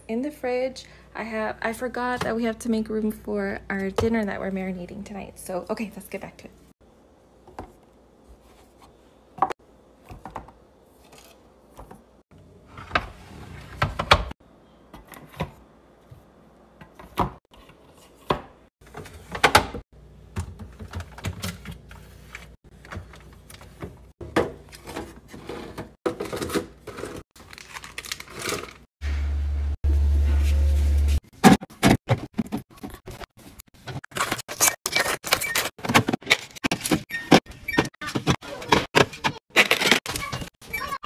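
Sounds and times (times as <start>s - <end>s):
packaging crinkling: 27.4s - 28.8s.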